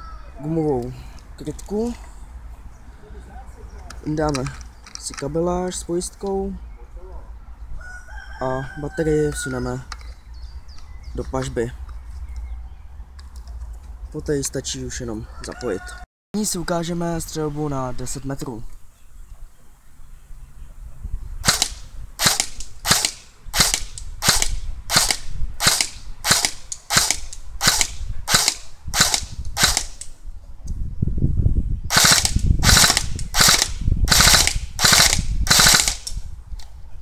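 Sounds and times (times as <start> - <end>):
airsoft gun single shots: 21.4 - 30.0.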